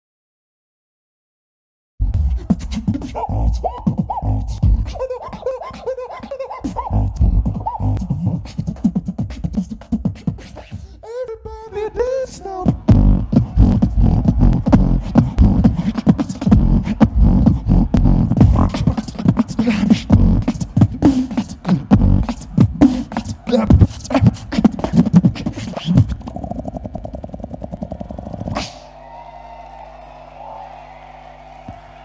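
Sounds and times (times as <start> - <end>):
person beatboxing into a microphone: 2.0 - 28.9.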